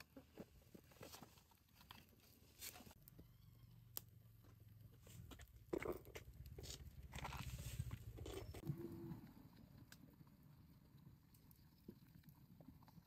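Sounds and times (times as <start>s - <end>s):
wood fire crackling: 0.0s - 8.6s
fire popping: 5.1s - 8.7s.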